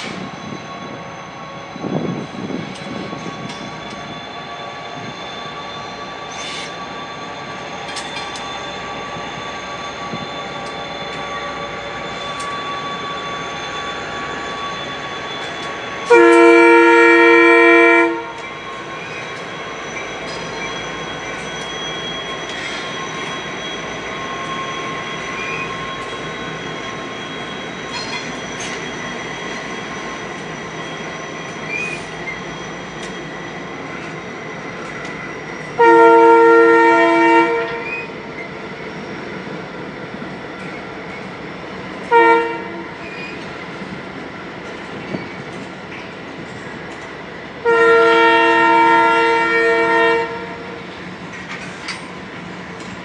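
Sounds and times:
high-pitched wheel squeal: 0.0 - 39.6, 40.2 - 47.0
freight train rumbling past: 0.0 - 53.0
train wheel clicks: 7.8 - 8.6, 12.2 - 12.6, 15.4 - 15.8, 51.2 - 53.0
locomotive air horn blast: 16.1 - 18.4, 35.8 - 37.9, 42.1 - 42.9, 47.6 - 50.8.

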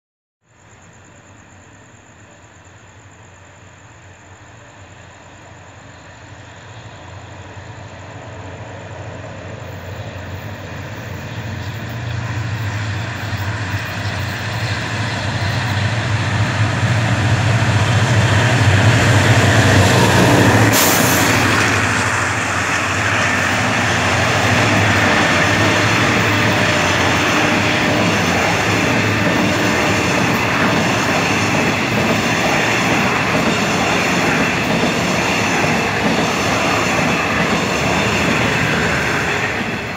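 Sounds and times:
diesel train passing: 0.6 - 39.9
carriages rumbling past: 9.1 - 39.9.

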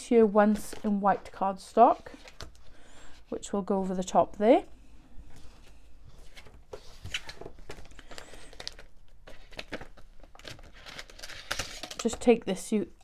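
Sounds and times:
plastic packaging crinkling: 7.0 - 12.4.

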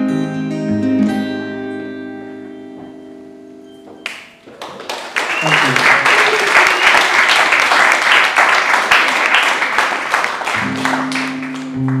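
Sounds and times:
guitar chord ringing: 0.0 - 4.3
audience applauding: 4.0 - 12.0.

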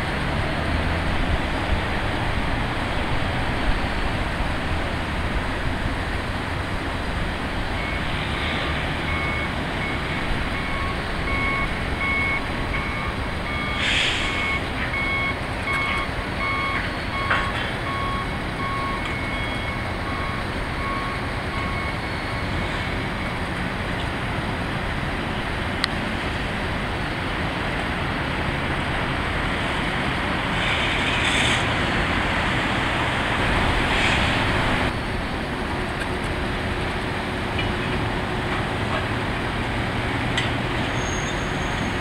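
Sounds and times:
engine rumble: 0.0 - 42.0
wind noise: 0.0 - 42.0
backup alarm beeping: 7.8 - 23.4
brief hiss: 13.8 - 14.4, 30.6 - 31.8, 33.9 - 34.6.

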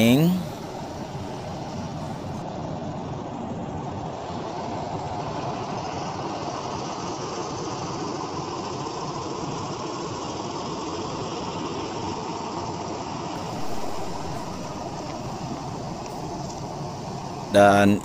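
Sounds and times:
diesel bus engine idling: 13.4 - 18.0.

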